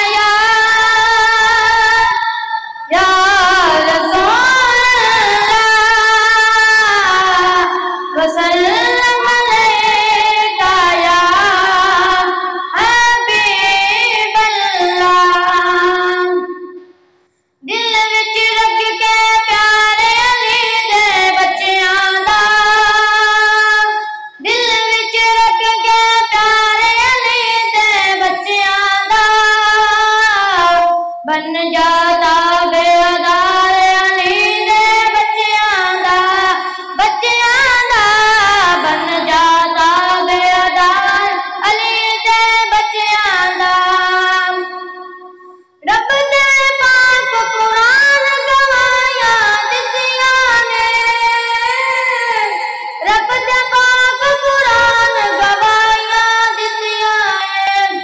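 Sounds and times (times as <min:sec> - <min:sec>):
boy singing into a microphone: 0:00.0 - 0:16.9, 0:17.6 - 0:58.0.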